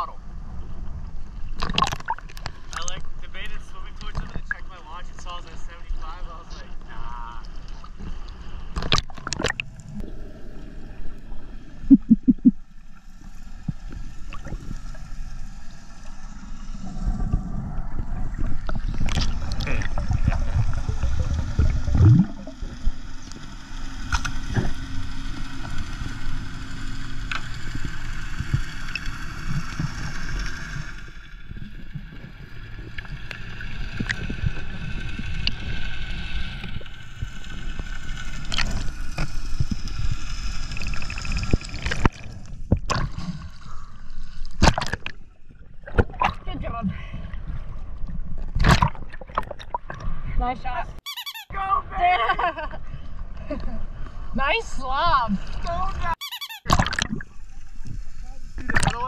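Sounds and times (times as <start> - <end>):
underwater rush and bubbles: 0.2 - 51.0, 55.2 - 59.0
underwater clicks and crackles: 1.5 - 3.1, 3.9 - 5.3, 7.4 - 10.1, 17.0 - 24.8, 27.2 - 43.5, 44.4 - 46.6, 47.5 - 50.2, 56.7 - 58.0, 58.6 - 59.0.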